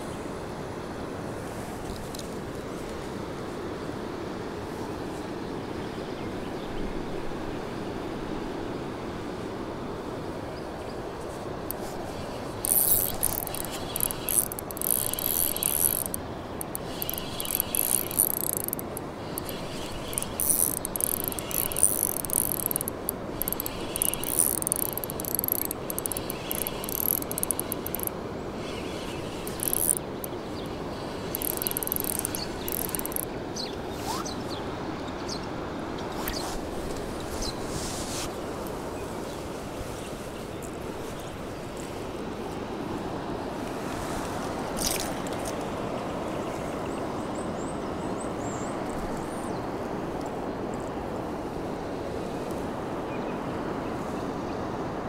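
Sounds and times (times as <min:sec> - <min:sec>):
steady outdoor rush: 0:10.4 - 0:35.1
fishing reel clicking: 0:12.6 - 0:30.4, 0:31.1 - 0:33.3.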